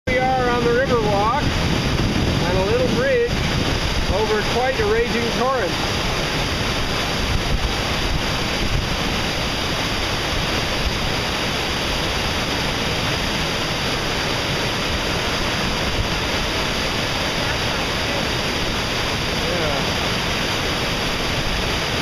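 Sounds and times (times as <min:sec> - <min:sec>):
river torrent rushing: 0:00.1 - 0:22.0.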